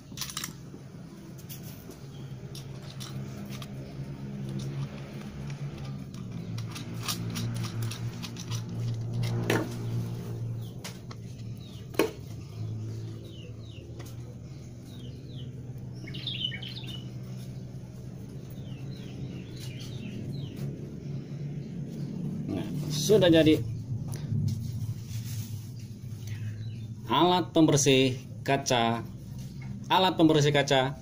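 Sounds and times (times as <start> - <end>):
steady low hum: 0.0 - 30.1
bird chirping: 10.4 - 23.0.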